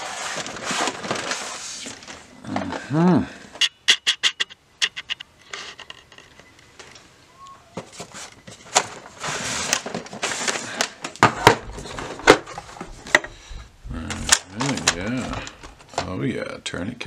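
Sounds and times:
plastic box rustling: 0:00.0 - 0:02.8, 0:07.8 - 0:13.4, 0:14.0 - 0:16.1.

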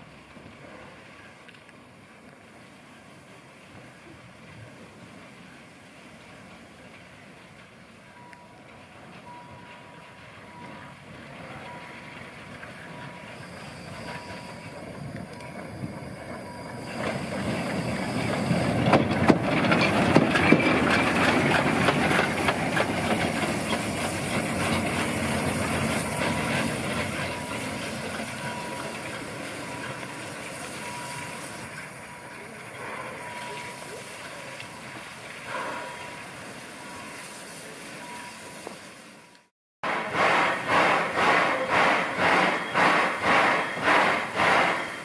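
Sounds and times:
steam locomotive rolling past: 0:00.0 - 0:45.0
wheels clicking: 0:07.0 - 0:36.4
steam hissing: 0:09.2 - 0:45.0.

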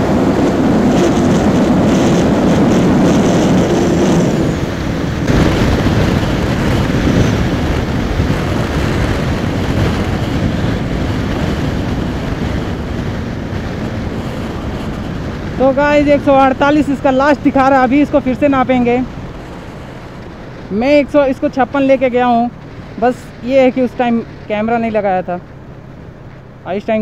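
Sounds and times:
motorcycle engine running flat out: 0:00.0 - 0:19.8
wind rush on microphone: 0:00.0 - 0:27.0.

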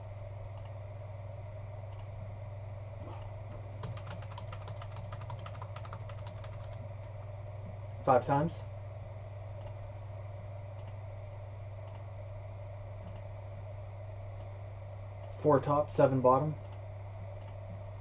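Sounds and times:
steady low hum: 0:00.0 - 0:18.0
keyboard typing: 0:03.8 - 0:06.8.

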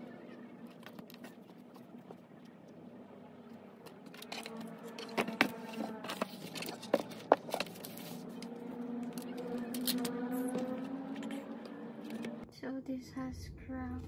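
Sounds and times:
paper wrapping rustling: 0:04.1 - 0:08.4.

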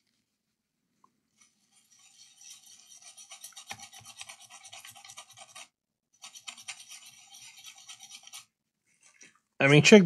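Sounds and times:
brush scrubbing circuit board: 0:01.4 - 0:08.6.

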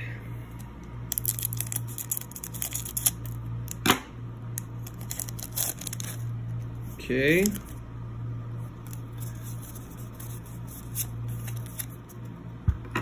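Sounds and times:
foil pack tearing: 0:01.1 - 0:03.4, 0:04.8 - 0:06.2
foil wrapper crinkling: 0:01.1 - 0:03.4, 0:04.8 - 0:06.3, 0:08.8 - 0:12.2.

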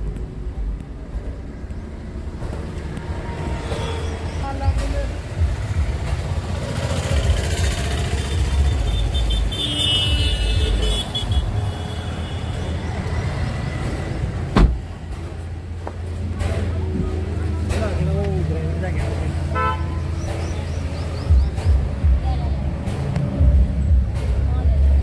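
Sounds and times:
road traffic rumble: 0:00.0 - 0:25.0
vehicle horn toots: 0:08.4 - 0:12.8, 0:19.5 - 0:20.0.

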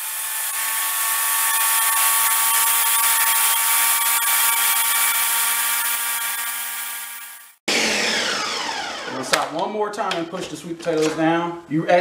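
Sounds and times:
blender running: 0:00.0 - 0:09.5.

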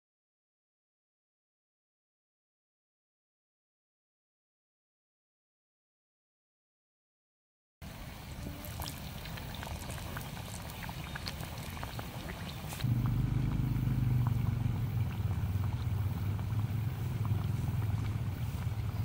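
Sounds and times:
oil sizzling and popping: 0:08.2 - 0:19.0
low rumble: 0:12.8 - 0:19.0.

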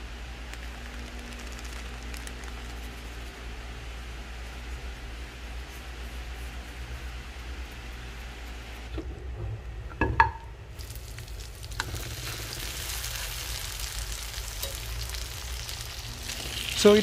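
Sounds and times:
chicken sizzling in a frying pan: 0:10.7 - 0:17.0.

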